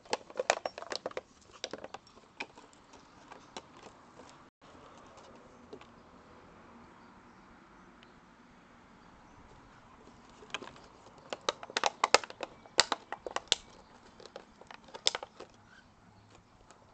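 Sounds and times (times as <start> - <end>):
dog chewing plastic bottle: 0.0 - 3.8, 10.3 - 15.6.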